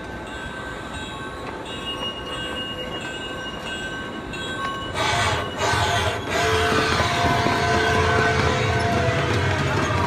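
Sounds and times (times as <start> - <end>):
train rolling on track: 0.0 - 10.0
train wheels squealing: 0.3 - 10.0.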